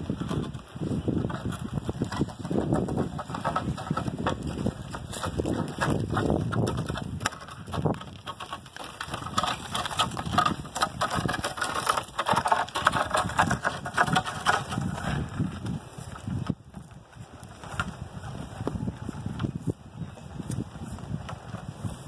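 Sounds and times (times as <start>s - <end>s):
hooves crunching on gravel: 0.0s - 22.0s
planks scraping over gravel: 0.0s - 22.0s.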